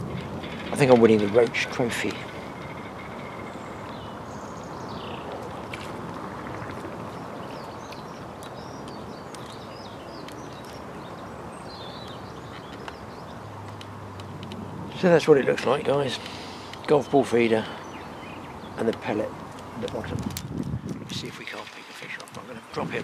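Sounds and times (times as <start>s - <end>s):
outdoor background hiss: 0.0s - 23.0s
small birds chirping: 0.0s - 23.0s.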